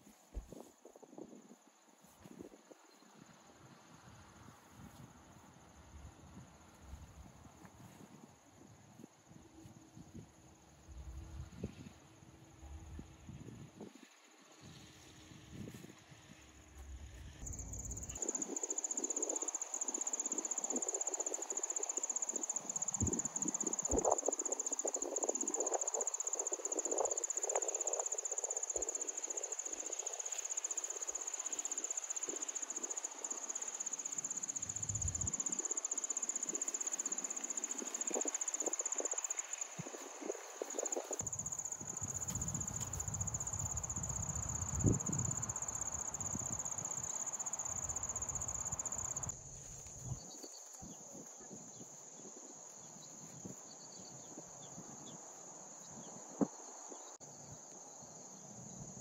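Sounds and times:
rustles of person moving: 0.0s - 1.3s
insects trilling: 17.4s - 59.0s.

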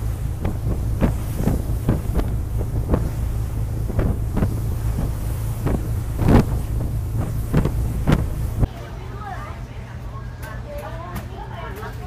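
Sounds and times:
short thuds: 0.0s - 8.7s
wind buffeting microphone: 0.0s - 8.7s
boat engine rumble: 0.0s - 9.7s.

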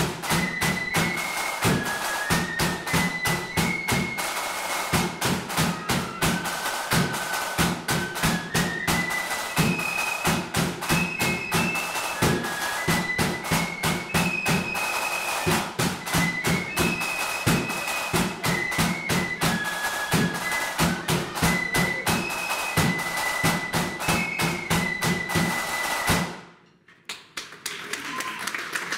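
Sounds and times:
flutes playing melody: 0.0s - 26.4s
side drum strokes: 0.0s - 26.4s.

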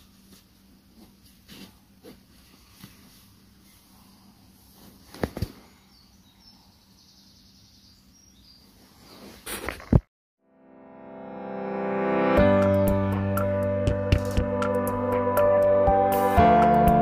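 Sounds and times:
faint high bird chirps: 5.7s - 8.8s.

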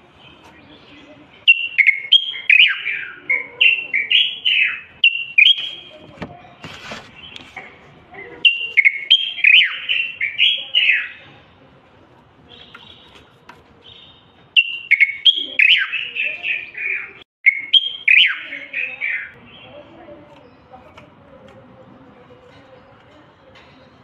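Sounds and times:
bird singing whistled phrases: 1.5s - 5.9s, 8.4s - 11.2s, 13.9s - 19.7s.

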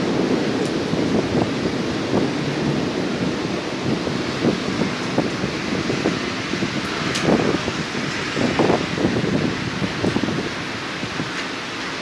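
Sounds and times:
wind and rain hiss: 0.0s - 12.0s
wind buffeting microphone: 0.0s - 12.0s.

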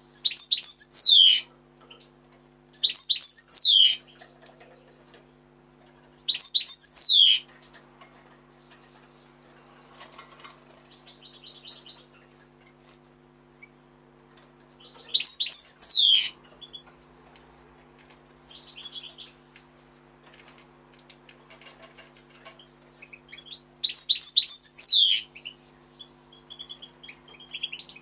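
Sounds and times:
goldfinch twittering song: 0.1s - 2.1s, 2.7s - 4.3s, 6.2s - 10.2s, 14.7s - 16.9s, 22.6s - 28.0s.

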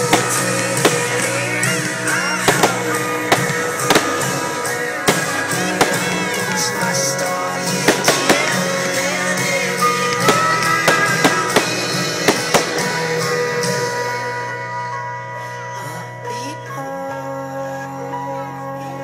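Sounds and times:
fireworks bangs and cracks: 0.0s - 14.4s
music: 0.0s - 19.0s.

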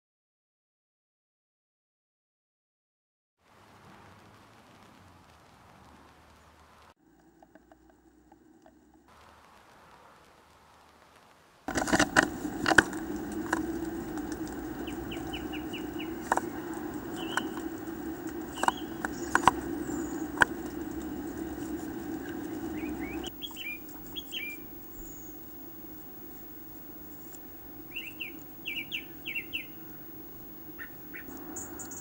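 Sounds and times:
low hum: 3.5s - 32.0s
wing flutters: 3.8s - 32.0s
claws scratching on wood: 11.7s - 23.3s
bird high calls: 12.3s - 32.0s.

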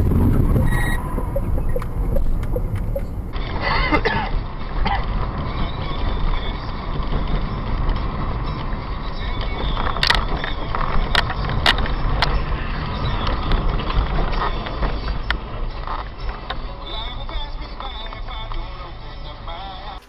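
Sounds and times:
road and engine noise in car: 0.0s - 20.0s
sharp clicks: 0.4s - 3.4s.

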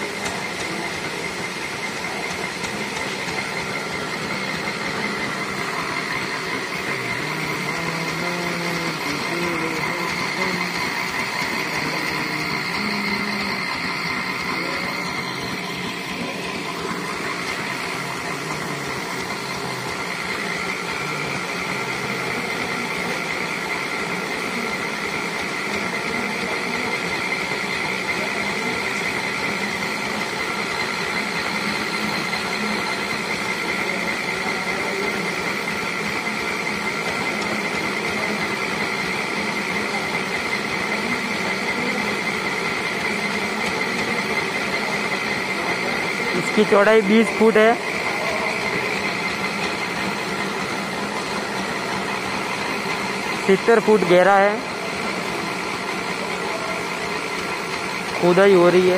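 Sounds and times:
high-pitched squeal: 0.0s - 58.9s
winch engine running: 0.0s - 58.9s.

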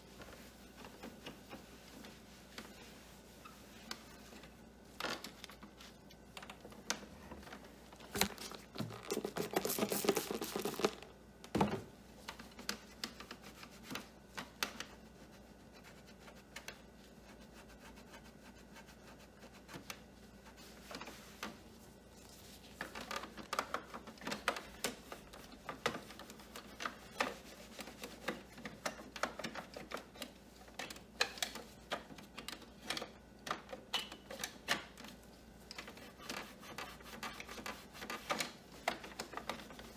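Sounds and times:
cloth rubbing on plastic: 0.0s - 5.0s, 7.5s - 11.1s, 15.0s - 28.8s, 35.8s - 39.9s.

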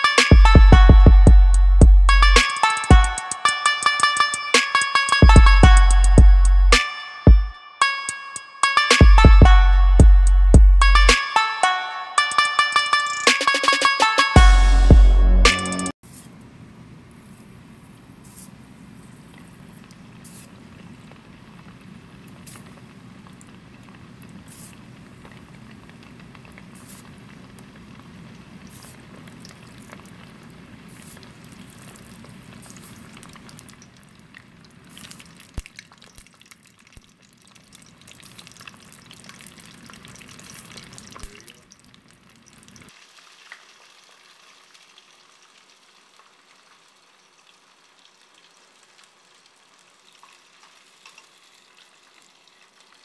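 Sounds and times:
deep-frying sizzle and bubbling: 16.0s - 53.0s
oil crackling pops: 19.3s - 53.0s.

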